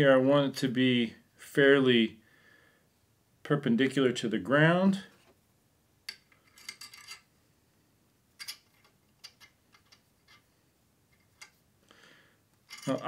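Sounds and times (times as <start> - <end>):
metal fittings clicking and rubbing: 8.4 - 10.5, 11.1 - 11.6, 12.5 - 13.0.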